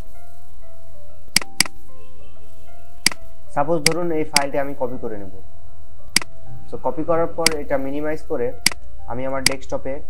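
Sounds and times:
soft background music: 0.0 - 10.0.

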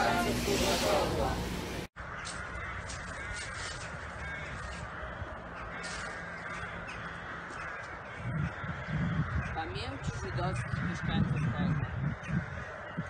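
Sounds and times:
crows cawing: 2.0 - 13.0
footsteps through dry leaves: 2.2 - 6.4.

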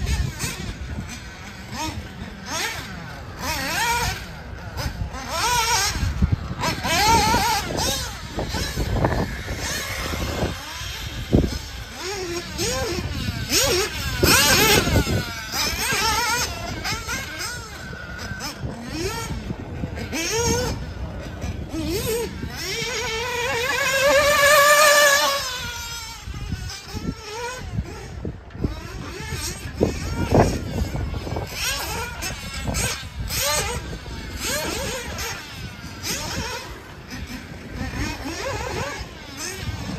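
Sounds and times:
model car motors whining: 0.0 - 39.9.

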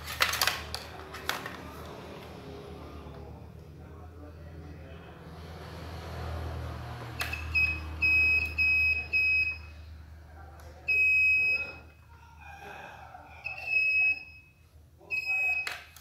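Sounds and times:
multimeter continuity beeps: 7.2 - 9.8, 10.9 - 11.9, 13.4 - 16.0.

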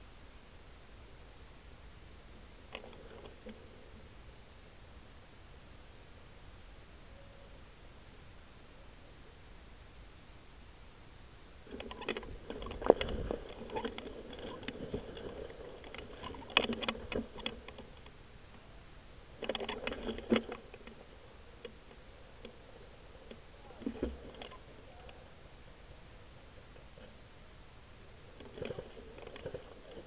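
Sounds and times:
leaves and twigs crunching: 11.7 - 18.1.

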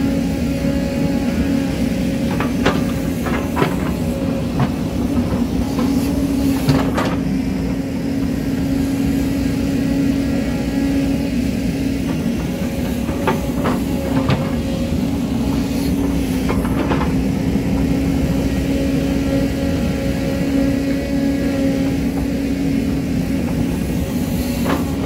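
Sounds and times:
excavator diesel engine: 0.0 - 25.0.

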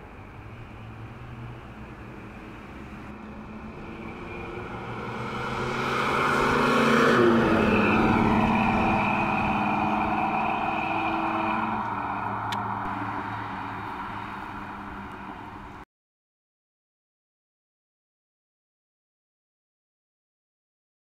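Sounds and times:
car engine driving past: 0.6 - 15.8.

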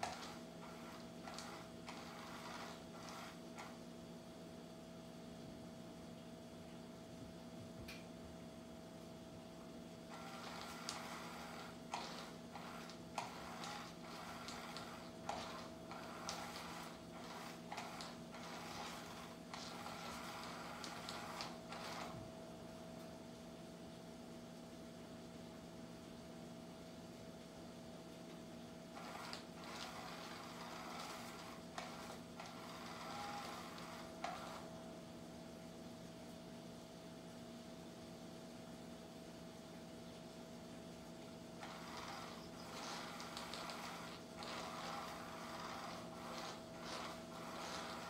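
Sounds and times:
small motor humming: 0.0 - 3.8, 10.1 - 22.3, 28.9 - 34.7, 41.6 - 48.0
toy clicks: 41.6 - 48.0.

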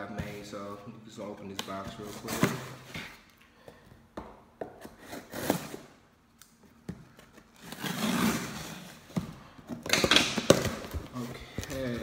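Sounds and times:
tape ripping off cardboard: 7.6 - 9.0.

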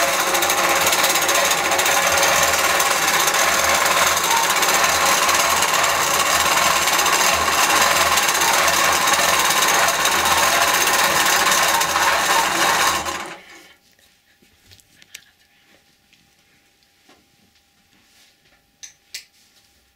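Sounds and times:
quilting machine stitching: 0.0 - 13.7.

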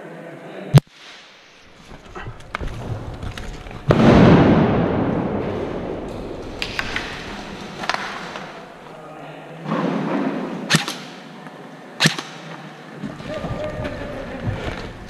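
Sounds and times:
airsoft gun shots: 10.7 - 11.2, 12.0 - 12.6.

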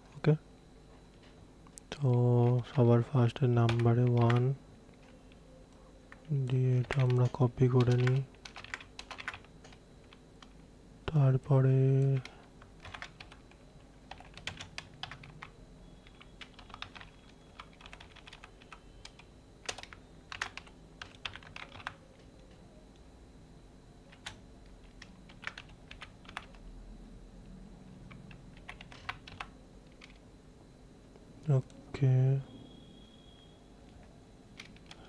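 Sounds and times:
typing on keyboard: 3.6 - 4.5, 6.1 - 10.6, 12.0 - 22.0, 24.1 - 26.6, 28.1 - 30.2, 34.6 - 35.0.

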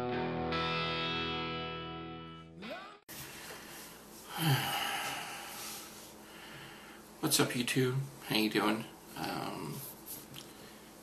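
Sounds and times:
distorted electric guitar chord: 0.0 - 2.9.

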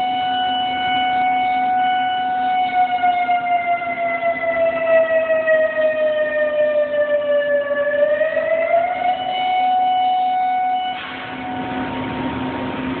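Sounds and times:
warning siren wailing: 0.0 - 13.0
steady low hum: 11.2 - 13.0.

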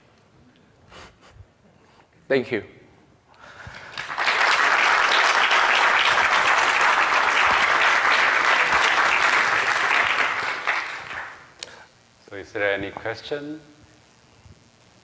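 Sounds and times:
audience applauding: 3.5 - 11.6.

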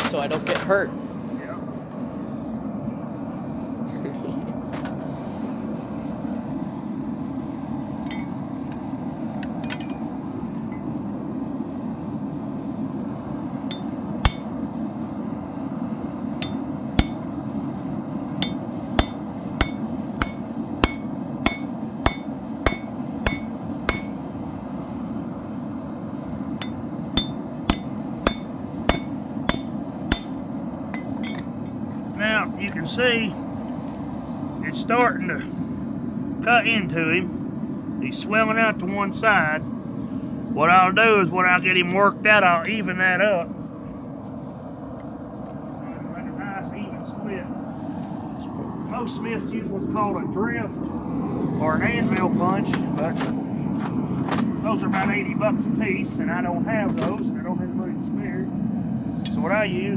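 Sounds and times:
forge burner roaring: 0.0 - 59.9
hammer striking steel chisel: 13.7 - 14.5, 16.4 - 17.2, 18.4 - 24.2, 26.6 - 30.4.

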